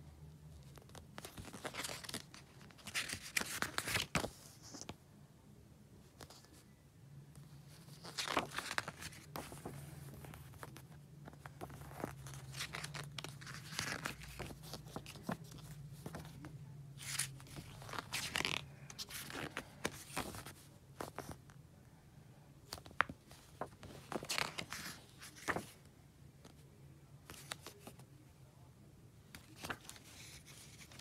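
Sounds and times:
pages crinkling as they flip: 0.5s - 5.0s, 7.7s - 21.4s, 22.7s - 25.8s, 27.2s - 28.0s, 29.3s - 31.0s
paper pages rustling: 0.5s - 5.0s, 7.7s - 21.4s, 22.7s - 25.8s, 27.2s - 28.0s, 29.3s - 31.0s.

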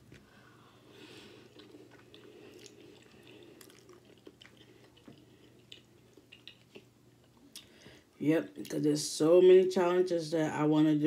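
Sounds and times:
chewing pasta: 1.2s - 7.7s.

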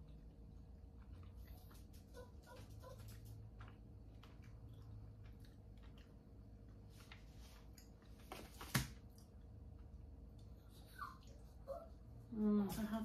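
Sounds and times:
faint chewing: 0.0s - 8.4s.

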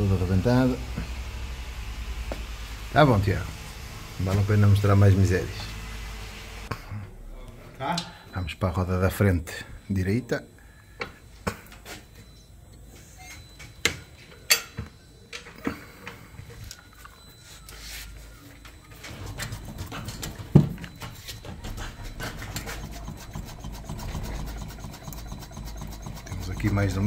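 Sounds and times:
rubbing rasping noise: 19.1s - 27.0s.

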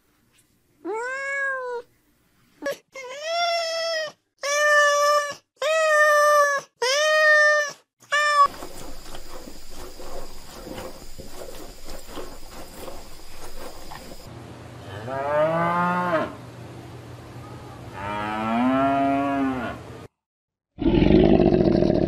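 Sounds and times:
cat meowing: 0.8s - 1.9s
shuffling noise: 8.5s - 14.3s
cow mooing: 18.0s - 19.8s.

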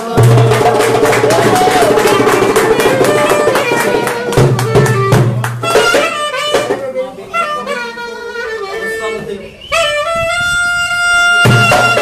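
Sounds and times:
quick hand drumming: 0.0s - 6.9s, 11.4s - 12.0s
clarinet melody: 2.1s - 12.0s.

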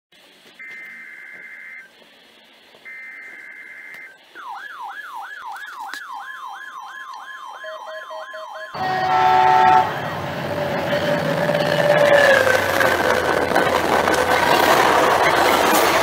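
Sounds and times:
electronic alarm wailing: 0.6s - 1.9s, 2.9s - 12.6s
short beeps: 0.6s - 1.9s, 2.9s - 4.5s
train horn: 8.8s - 12.4s
train passing rumble: 8.8s - 16.0s.

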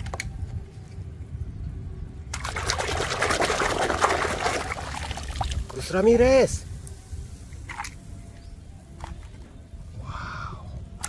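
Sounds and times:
water spilling: 2.3s - 6.0s.

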